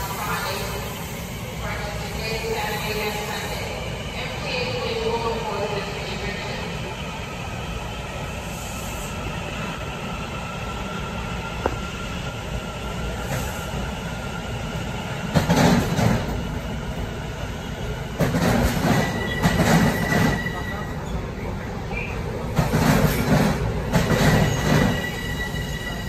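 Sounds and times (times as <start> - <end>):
train rumbling: 0.0 - 26.0
train wheel clatter: 18.2 - 20.6, 22.5 - 25.4.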